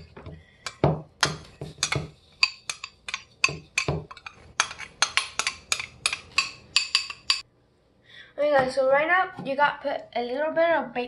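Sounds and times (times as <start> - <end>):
spoon clinking on ceramic bowl: 0.7 - 7.4.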